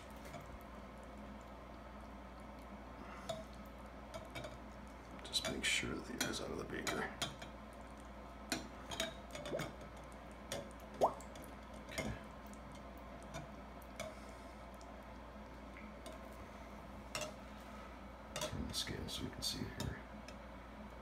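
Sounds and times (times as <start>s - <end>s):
gas bubbling into water: 10.9s - 11.3s
bubble bloop: 11.0s - 11.2s.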